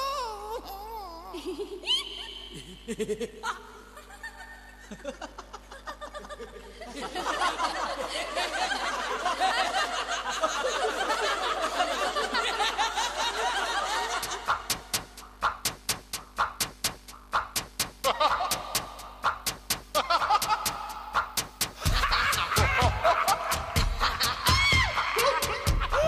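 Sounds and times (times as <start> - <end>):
people laughing: 1.2 - 14.9, 18.0 - 26.0
drum machine beat: 11.5 - 26.0.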